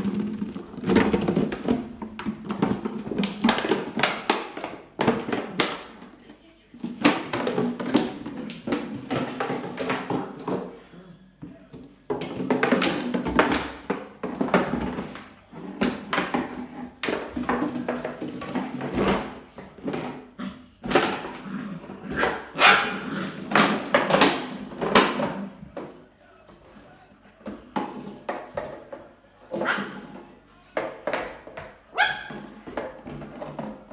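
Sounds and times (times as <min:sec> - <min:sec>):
plastic bottle knocking on tile: 0:00.0 - 0:06.1, 0:06.8 - 0:10.7, 0:11.7 - 0:26.0, 0:27.4 - 0:30.2, 0:30.8 - 0:33.9
puppy barking: 0:22.2 - 0:23.1, 0:31.9 - 0:32.4.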